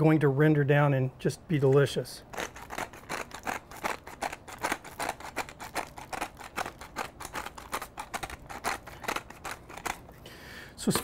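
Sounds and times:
pepper mill grinding: 2.2s - 11.0s.

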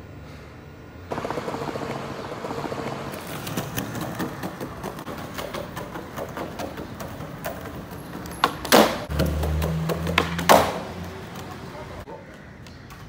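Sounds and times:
skateboard rolling over rough pavement: 2.9s - 11.6s
skateboard pop: 3.3s - 11.6s
skateboard landing crash: 8.4s - 10.9s.

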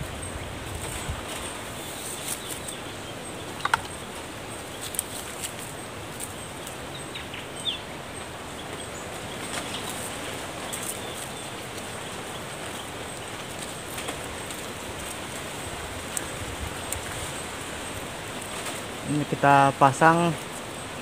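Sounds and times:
outdoor hiss: 0.0s - 21.0s
twigs snapping: 3.6s - 4.1s, 4.7s - 6.8s.

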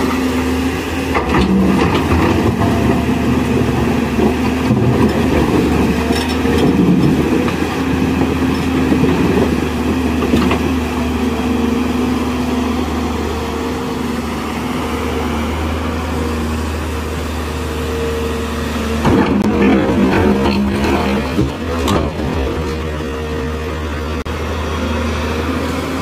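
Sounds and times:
excavator diesel engine whine: 0.0s - 26.0s.

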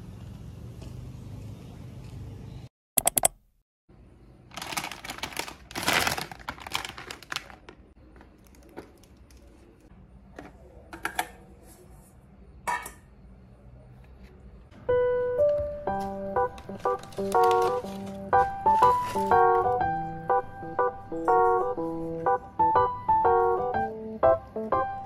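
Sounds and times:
rustling food packages: 4.4s - 9.9s, 16.6s - 19.8s
kitchenware clattering: 12.6s - 13.1s.

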